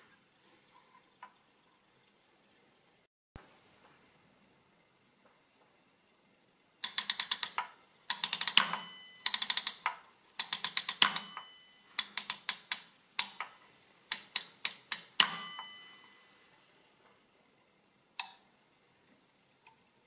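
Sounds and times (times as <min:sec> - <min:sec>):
metal number wheel clicking: 0:06.8 - 0:13.5, 0:14.1 - 0:15.8
faint metallic ring: 0:08.7 - 0:09.4, 0:11.1 - 0:12.0, 0:15.2 - 0:16.4.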